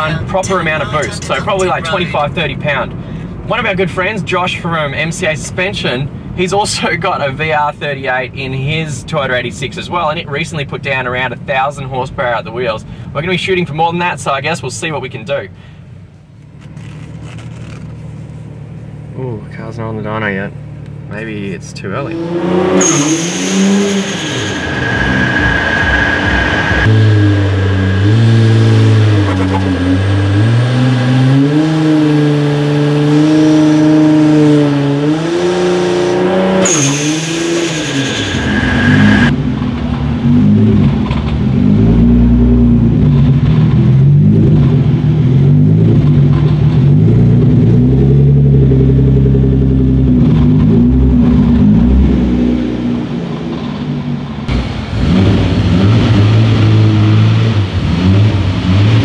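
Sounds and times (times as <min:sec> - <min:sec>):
high whine: 0:00.0 - 0:02.8, 0:22.8 - 0:31.5, 0:36.1 - 0:41.2
car engine revving: 0:00.0 - 0:05.5, 0:16.5 - 0:59.0.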